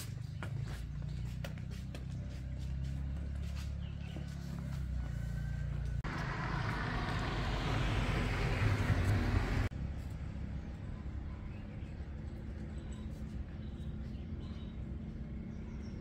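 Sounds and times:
low engine rumble: 0.0s - 16.0s
vehicle passing with road noise: 0.4s - 12.6s.

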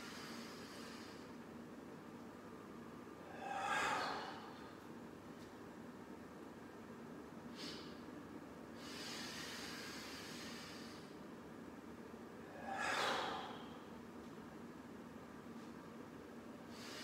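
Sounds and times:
man exhaling forcefully: 3.2s - 4.6s, 7.6s - 8.0s, 8.8s - 11.1s, 12.4s - 13.9s, 16.7s - 17.0s
man inhaling deeply: 3.2s - 4.6s, 7.5s - 8.0s, 8.8s - 11.1s, 12.5s - 13.9s, 16.7s - 17.0s.

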